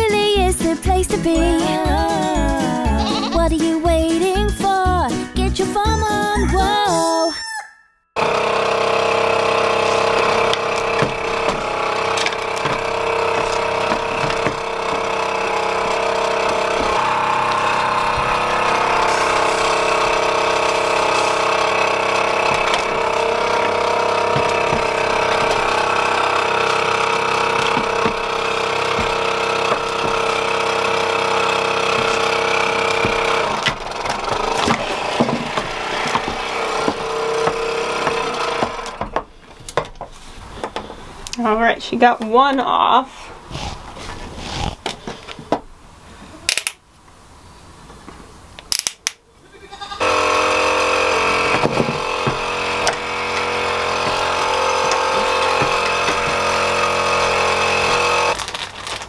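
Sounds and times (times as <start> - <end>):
vacuum pump humming: 8.2 - 39.6, 50.0 - 58.5.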